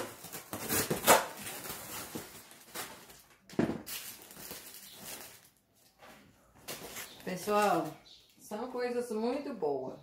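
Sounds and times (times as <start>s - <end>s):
cardboard box tearing open: 0.0s - 2.2s.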